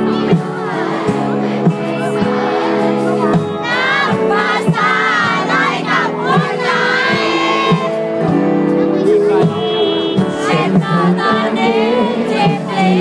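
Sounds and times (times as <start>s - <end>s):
crowd voices: 0.0s - 13.0s
live pop band playing: 0.0s - 13.0s
person singing: 7.1s - 13.0s
drum beat: 9.1s - 11.5s.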